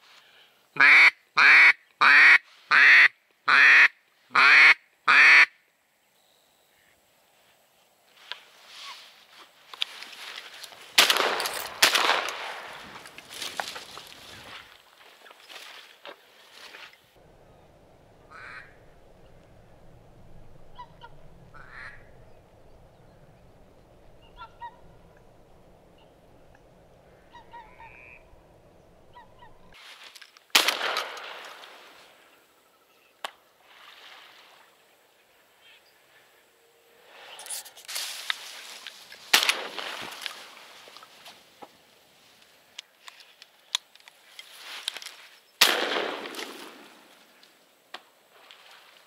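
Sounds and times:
duck call quacks: 0.8s - 5.6s, 18.2s - 18.8s, 20.7s - 22.1s, 24.2s - 25.0s, 27.1s - 28.2s
wind rumble on microphone: 17.2s - 29.7s.

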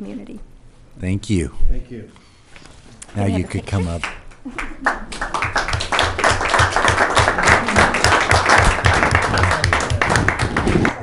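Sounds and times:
audience applauding: 4.0s - 11.0s.

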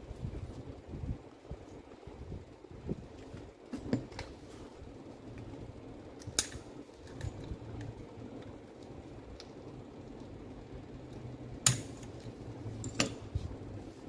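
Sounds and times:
low steady hum: 0.0s - 14.0s
pliers clicking on metal: 6.2s - 7.5s.

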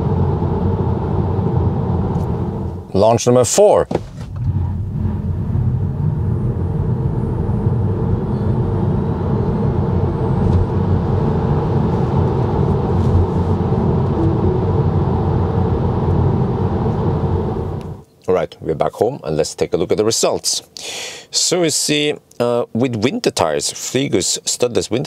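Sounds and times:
road and tyre noise: 0.0s - 3.0s, 4.0s - 18.0s.

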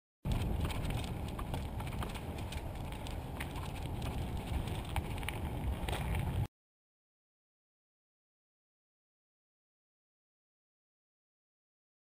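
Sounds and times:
bike clicks and rattles: 0.3s - 6.5s
bike rumbling on dirt trail: 0.3s - 6.5s.

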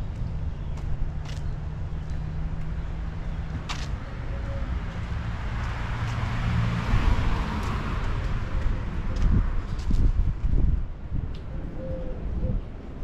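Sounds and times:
car passing by: 4.6s - 9.4s.

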